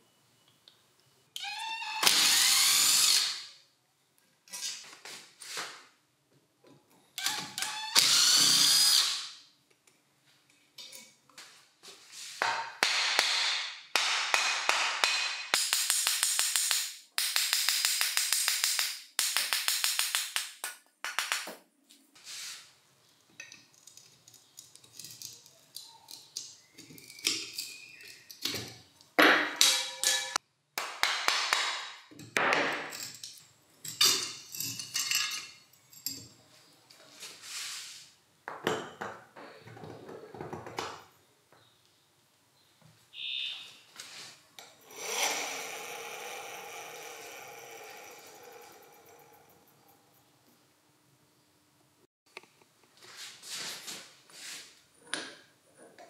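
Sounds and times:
tools scraping metal: 29.6 - 30.4.

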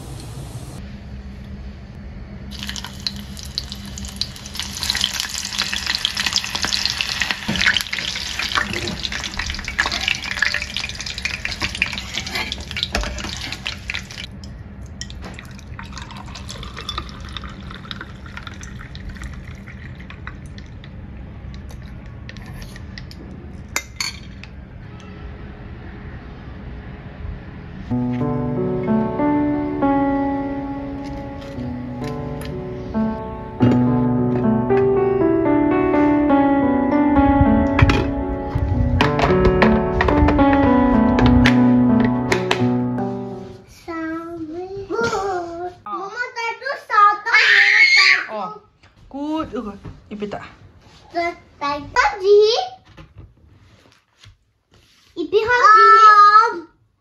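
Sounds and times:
onions sizzling in oil: 2.5 - 14.3.

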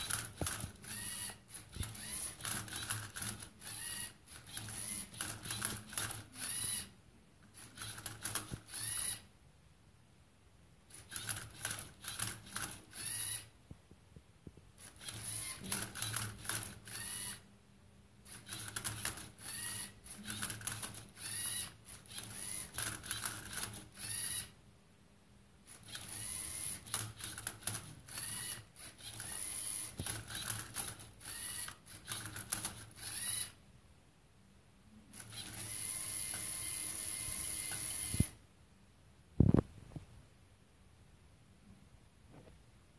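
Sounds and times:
plastic gears clicking: 0.0 - 6.9, 7.5 - 9.2, 10.9 - 13.5, 14.8 - 17.4, 18.3 - 24.5, 25.7 - 33.6
servo motors whirring: 0.0 - 6.9, 7.5 - 9.3, 10.9 - 13.5, 14.8 - 17.4, 18.3 - 24.6, 25.7 - 33.6, 35.1 - 38.4.

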